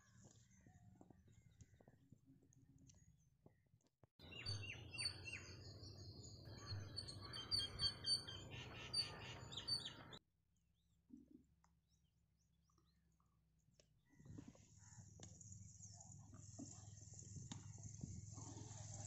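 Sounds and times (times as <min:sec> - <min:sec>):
small birds chirping: 0:04.2 - 0:10.2.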